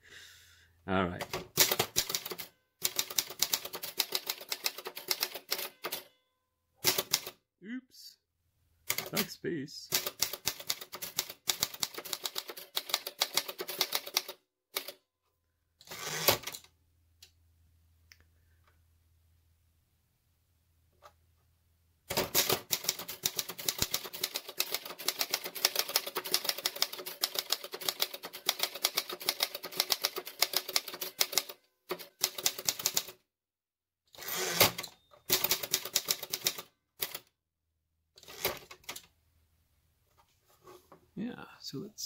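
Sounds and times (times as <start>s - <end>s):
typewriter keystroke clacks: 1.2s - 6.0s, 6.8s - 7.3s, 8.9s - 9.3s, 9.9s - 14.9s, 22.1s - 33.2s, 34.5s - 37.2s.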